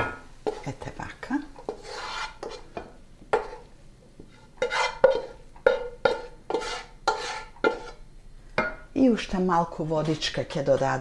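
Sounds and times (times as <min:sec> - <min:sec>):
spatula scraping metal pan: 0:01.6 - 0:08.0, 0:09.8 - 0:11.0.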